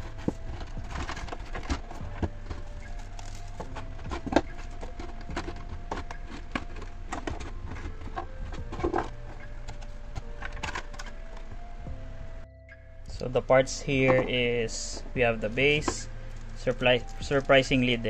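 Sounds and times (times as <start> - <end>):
plastic packaging being opened: 0.0 - 11.4, 15.8 - 18.0.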